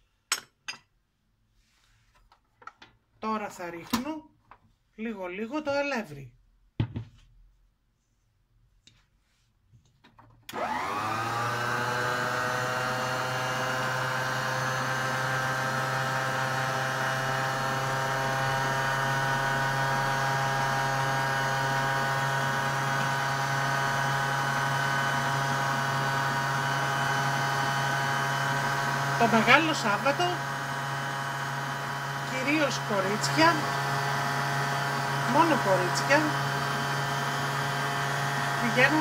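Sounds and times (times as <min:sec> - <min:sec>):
stand mixer motor whining: 0:10.5 - 0:39.0.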